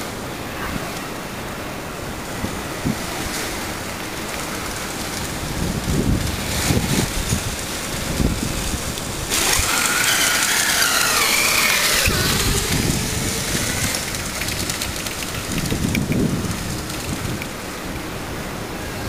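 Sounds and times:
electric motor whine: 9.3 - 16.2
tyres hissing through water: 9.3 - 17.6.

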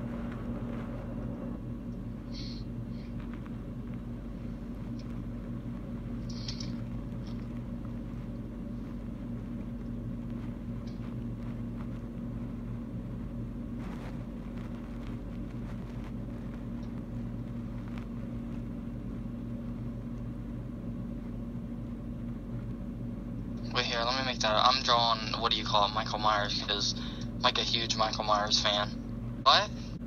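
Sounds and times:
steady low hum: 0.0 - 30.0
faint clicks and taps: 3.0 - 4.1.

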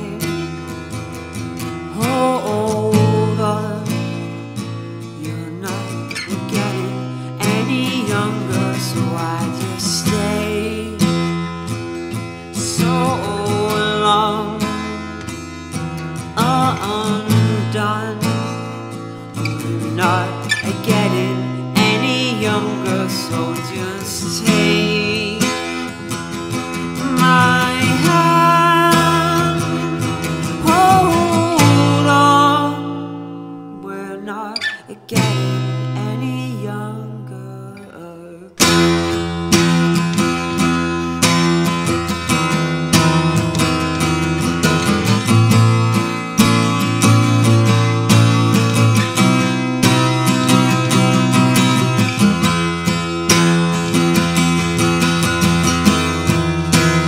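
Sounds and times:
man singing: 0.0 - 0.6, 1.9 - 4.3, 5.1 - 11.4, 12.5 - 15.0, 16.2 - 18.7, 19.4 - 26.1, 26.7 - 33.1, 33.8 - 38.8
acoustic guitar strummed: 0.0 - 57.0.

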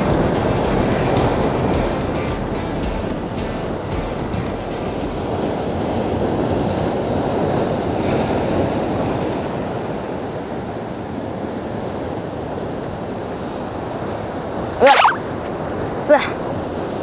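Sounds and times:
surf breaking over rocks: 0.0 - 9.5.

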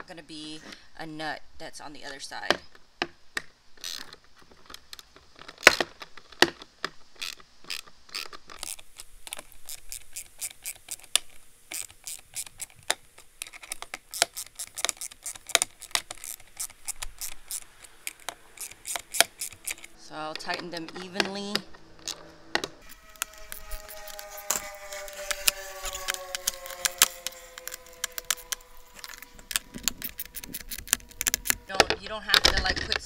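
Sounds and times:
socket wrench ratchet clicking: 3.8 - 4.1, 7.2 - 12.8, 13.4 - 20.0, 25.3 - 31.7.

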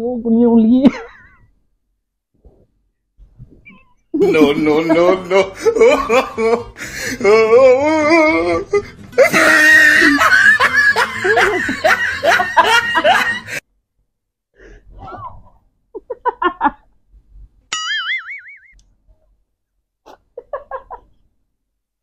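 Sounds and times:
man and woman laughing: 4.2 - 13.6, 16.0 - 16.9, 20.1 - 21.2.

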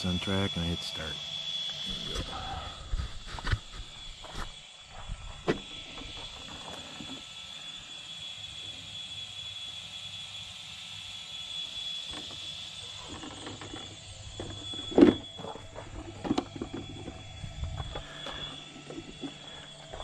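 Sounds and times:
high-pitched whine: 0.0 - 20.0.

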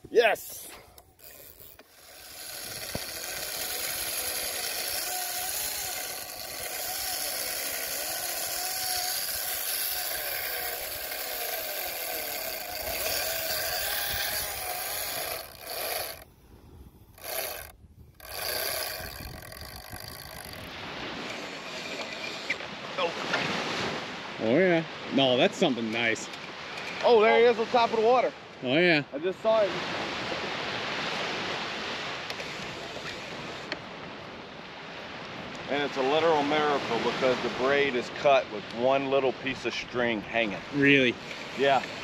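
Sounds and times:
fishing reel whirring whine: 0.4 - 16.4, 17.0 - 22.8, 32.4 - 33.8.

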